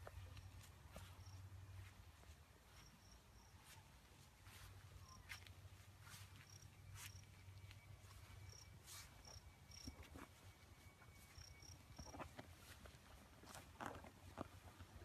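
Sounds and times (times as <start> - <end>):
crickets chirping: 0.4 - 1.4, 2.7 - 3.8, 5.0 - 12.4.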